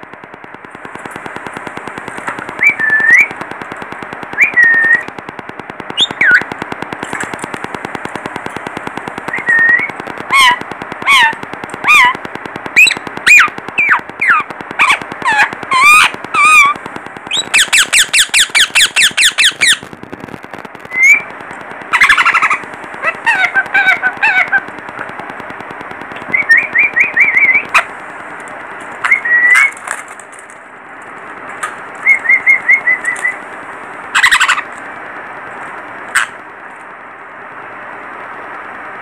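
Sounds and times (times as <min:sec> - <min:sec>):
trilled chirps: 0:02.5 - 0:03.4, 0:09.2 - 0:19.9, 0:26.2 - 0:27.9
parakeets squawking: 0:09.3 - 0:12.2, 0:12.8 - 0:19.9, 0:21.9 - 0:24.7, 0:29.0 - 0:30.0, 0:31.6 - 0:33.4, 0:34.1 - 0:34.8, 0:36.1 - 0:36.4
rattling run of parakeet calls: 0:09.4 - 0:19.8, 0:21.0 - 0:25.0, 0:34.0 - 0:34.7, 0:36.1 - 0:36.4.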